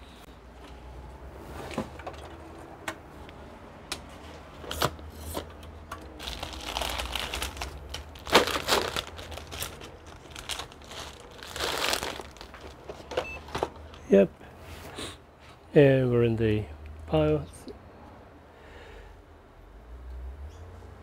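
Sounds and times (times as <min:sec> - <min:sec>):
plastic crinkling and rustling: 0:06.1 - 0:14.0.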